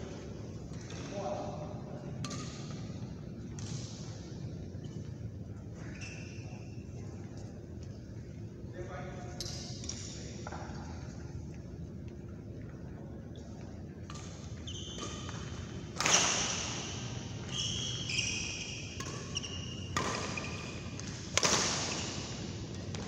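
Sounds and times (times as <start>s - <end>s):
rackets hitting shuttlecock: 2.2s - 2.8s, 14.0s - 17.6s, 18.4s - 23.0s
shoes squeaking on court: 3.6s - 7.6s, 13.4s - 23.0s.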